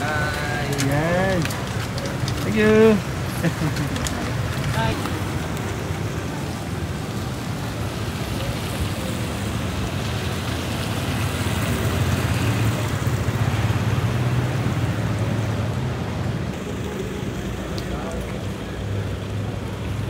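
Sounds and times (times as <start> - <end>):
traffic engine hum: 0.0 - 20.0
vehicle approaching: 0.0 - 20.0.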